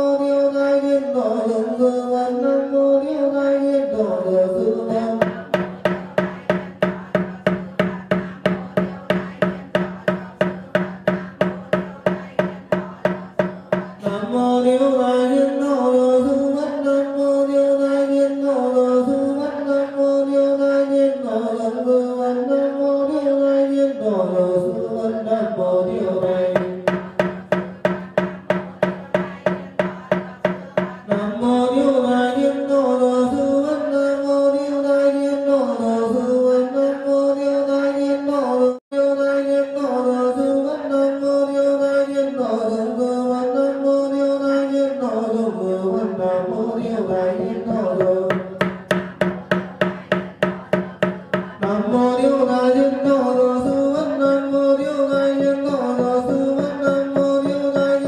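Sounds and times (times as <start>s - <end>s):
voices chanting in unison: 3.8s - 18.4s, 24.2s - 33.9s.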